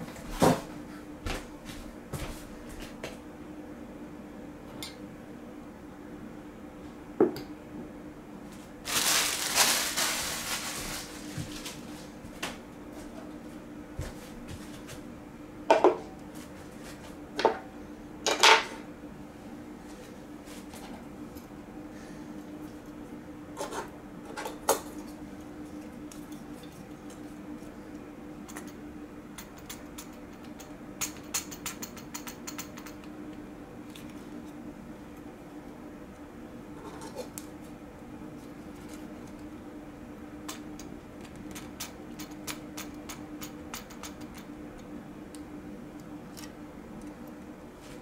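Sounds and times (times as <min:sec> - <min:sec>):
faint hum: 0:00.0 - 0:48.0
plastic wrap crinkling: 0:08.8 - 0:11.9.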